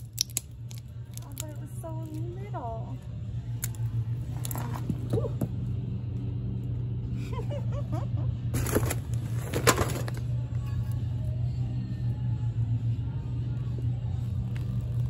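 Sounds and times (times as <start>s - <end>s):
toy cars cracking and crunching: 0.0s - 1.5s, 8.6s - 10.3s
steady low hum: 0.0s - 15.0s.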